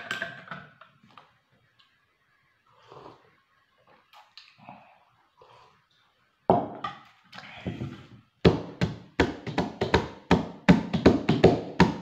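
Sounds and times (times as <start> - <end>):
music with percussive beat: 8.5 - 12.0.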